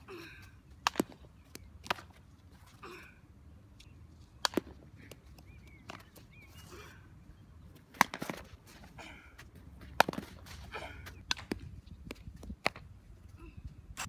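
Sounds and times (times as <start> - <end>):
softball smacking bat and glove: 0.8 - 2.2, 4.4 - 6.2, 7.8 - 8.6, 9.6 - 12.9.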